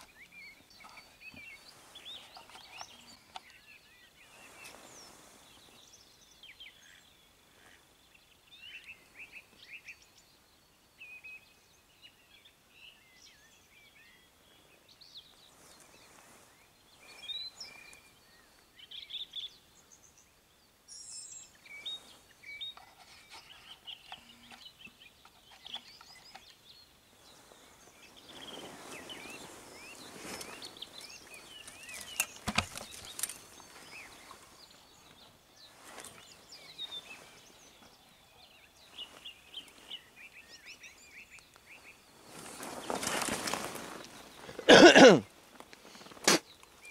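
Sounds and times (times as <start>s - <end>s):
songbirds chirping: 0.0s - 46.9s
rustling: 27.3s - 38.0s, 42.1s - 44.7s.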